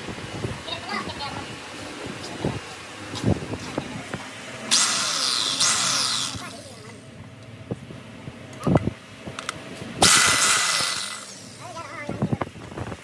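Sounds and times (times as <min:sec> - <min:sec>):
electric drill running: 0:04.6 - 0:07.0, 0:10.0 - 0:11.7.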